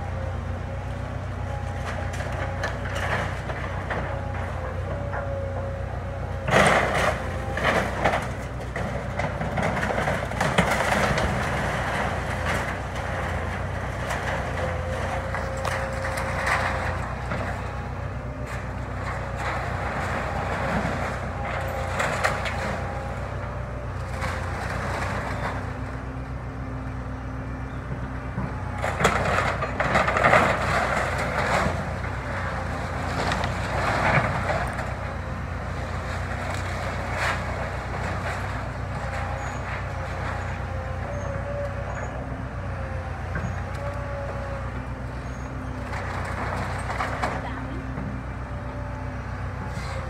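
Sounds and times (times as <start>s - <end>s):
excavator diesel engine running: 0.0s - 50.0s
timbers cracking and crashing: 6.4s - 26.0s, 28.6s - 41.6s, 45.6s - 47.8s.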